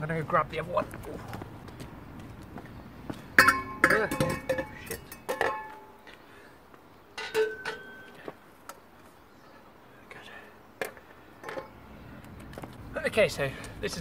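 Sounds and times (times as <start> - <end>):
metal pipes clanking and ringing: 3.4 - 6.0, 7.2 - 8.2.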